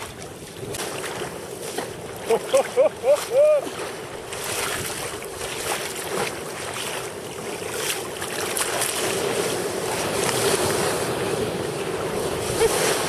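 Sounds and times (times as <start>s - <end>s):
rough sea churning and breaking: 0.0s - 13.0s
water rushing along hull: 0.0s - 13.0s
water splashes: 0.0s - 13.0s
wind buffeting microphone: 3.7s - 13.0s.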